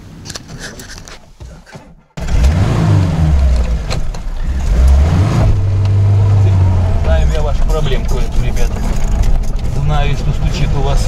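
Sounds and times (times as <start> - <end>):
car engine revving: 2.2 - 11.0.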